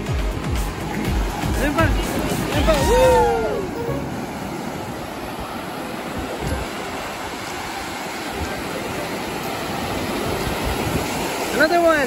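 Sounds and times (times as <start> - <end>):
low rumble of surf: 0.0 - 12.0
waves breaking: 0.0 - 12.0.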